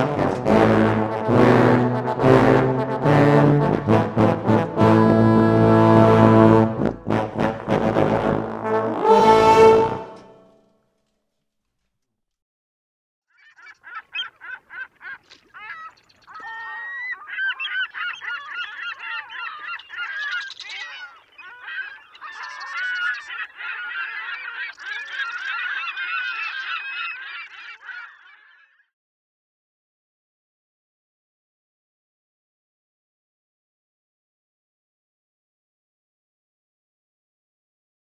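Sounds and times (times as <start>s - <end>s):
geese honking: 0.0s - 10.3s, 13.4s - 28.8s.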